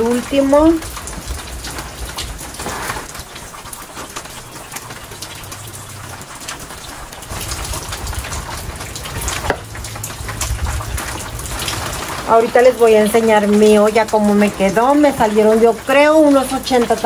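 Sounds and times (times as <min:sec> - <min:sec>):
raindrops ticking on surfaces: 0:00.0 - 0:17.0
steady rain falling: 0:00.0 - 0:17.0.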